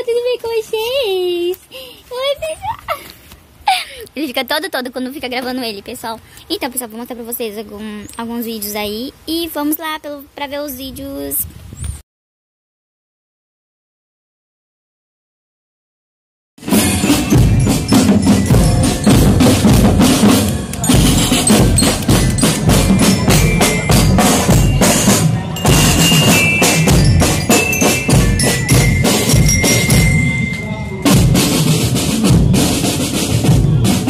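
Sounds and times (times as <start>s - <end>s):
glockenspiel notes: 16.6s - 31.8s
marching drums beating: 16.6s - 34.0s.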